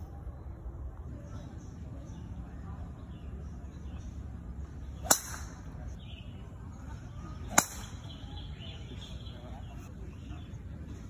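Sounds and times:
golf club striking ball: 0:04.9 - 0:05.7, 0:07.4 - 0:08.2.

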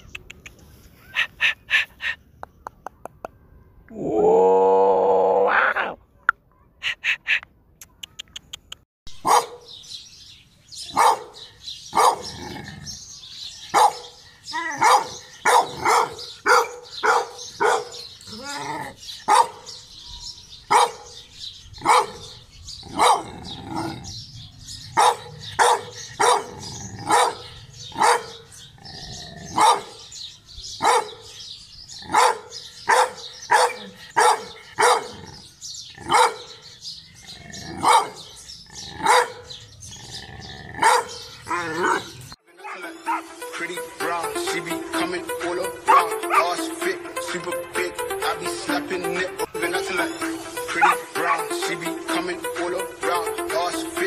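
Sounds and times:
loud rising cry: 0:03.9 - 0:06.0
dog barking: 0:09.2 - 0:09.7, 0:10.9 - 0:12.3, 0:13.7 - 0:14.2, 0:14.8 - 0:18.1, 0:19.3 - 0:19.7, 0:20.7 - 0:21.2, 0:21.8 - 0:23.9, 0:24.9 - 0:28.5, 0:29.5 - 0:30.0, 0:30.8 - 0:31.3, 0:32.0 - 0:35.3, 0:36.0 - 0:36.6, 0:37.7 - 0:38.3, 0:39.0 - 0:39.6, 0:40.8 - 0:42.1, 0:45.9 - 0:46.4, 0:50.7 - 0:51.0.

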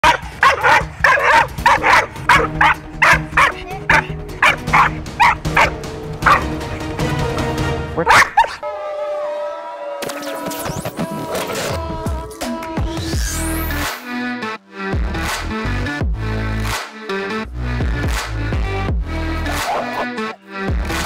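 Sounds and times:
dog barking rapidly: 0:00.0 - 0:06.5, 0:08.0 - 0:08.6, 0:19.5 - 0:20.1
music with gliding electronic tones: 0:10.0 - 0:15.0.

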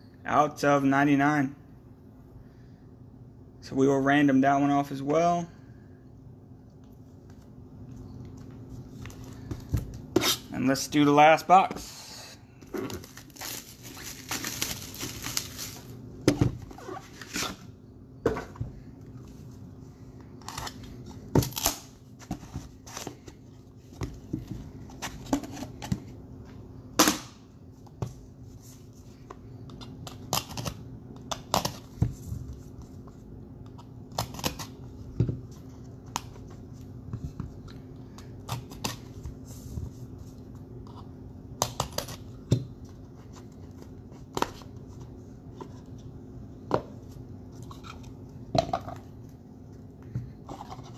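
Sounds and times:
cardboard packaging tearing: 0:12.9 - 0:15.9.

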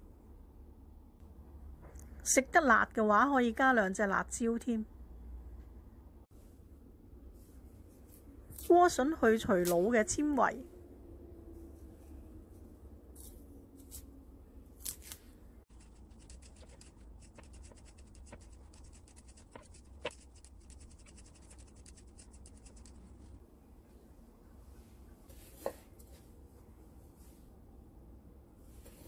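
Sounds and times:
knife scraping vegetable skin: 0:14.8 - 0:23.0.

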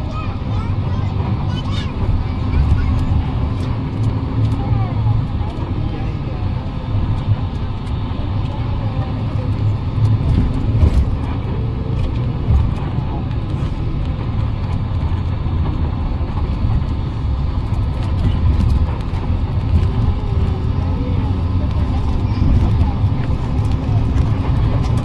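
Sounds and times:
faint voices: 0:00.0 - 0:25.0
low engine rumble: 0:00.0 - 0:25.0.

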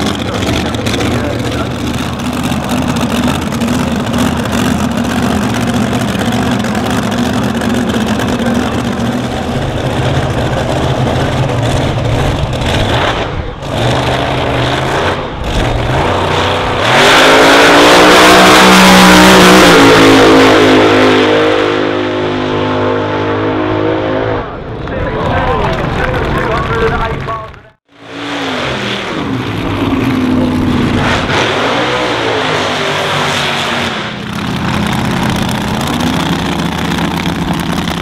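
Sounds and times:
dragster engine idling: 0:00.0 - 0:12.8, 0:34.2 - 0:38.0
dragster launching full throttle: 0:00.0 - 0:27.3, 0:28.0 - 0:38.0.

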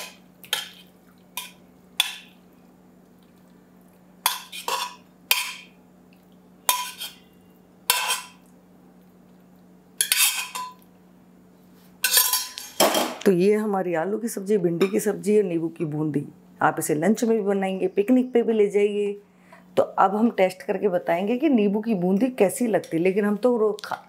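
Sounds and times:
steel spoon scraping a pot: 0:04.3 - 0:05.7, 0:06.7 - 0:08.4, 0:10.0 - 0:10.7, 0:12.0 - 0:12.8.

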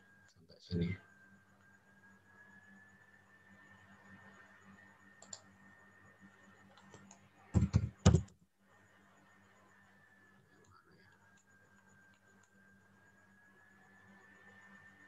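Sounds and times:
faint steady hum: 0:00.0 - 0:15.0
keyboard keystrokes: 0:06.9 - 0:08.3.

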